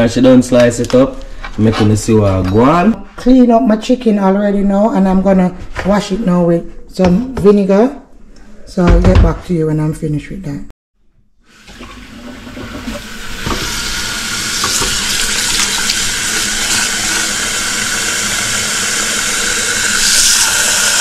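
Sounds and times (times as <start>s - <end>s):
faucet running into metal bowl: 11.6s - 21.0s.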